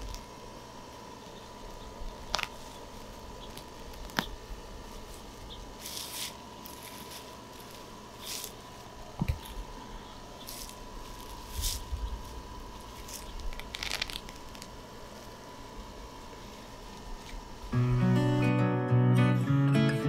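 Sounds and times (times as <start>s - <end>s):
soil rustling and crumbling: 1.2s - 17.8s.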